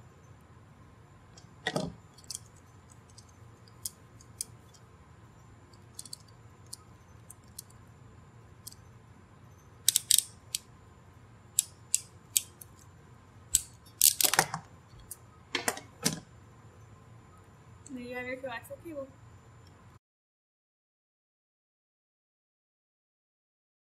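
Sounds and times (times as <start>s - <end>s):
small metal parts clinking: 1.6s - 4.9s, 5.7s - 7.8s, 9.8s - 10.6s, 13.5s - 15.8s
crimping tool clicks: 9.9s - 10.6s, 13.5s - 16.2s.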